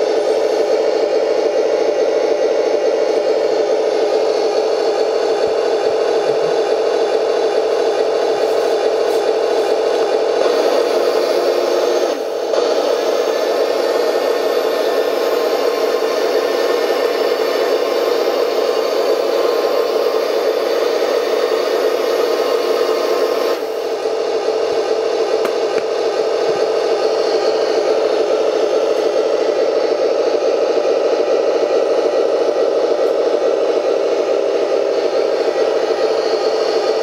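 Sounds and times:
model tank motors whirring and rattling: 0.0 - 37.0.

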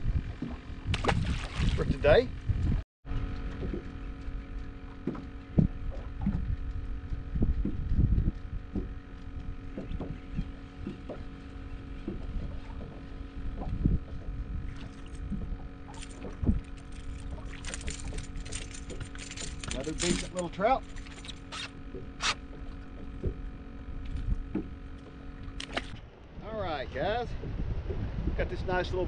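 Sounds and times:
water slapping boat hull: 0.0 - 26.1
steady hum: 0.0 - 29.0
fishing reel rattling clicks: 15.9 - 21.8.

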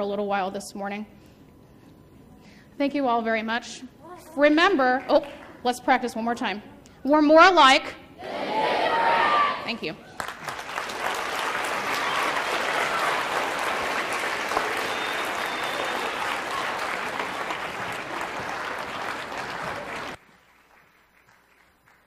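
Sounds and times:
audience applauding: 10.1 - 22.0.

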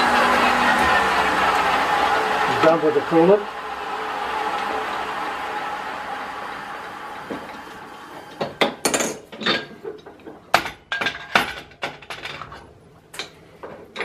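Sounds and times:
metal tools clinking against lathe: 8.8 - 10.3.

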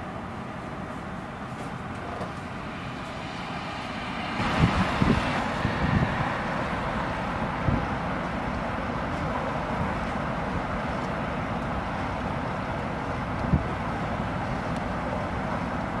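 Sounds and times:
constant even hiss: 0.0 - 16.0
wind buffeting microphone: 4.2 - 12.2, 13.0 - 15.4.

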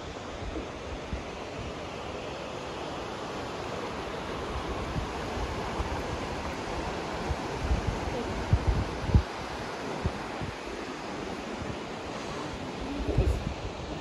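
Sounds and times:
river rushing over rocks: 0.0 - 14.0
wind buffeting microphone: 4.5 - 14.0.

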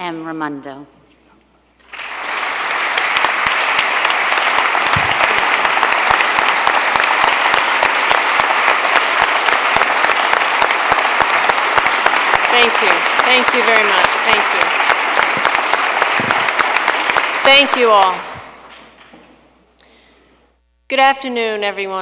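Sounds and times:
crowd applauding: 1.8 - 19.2.

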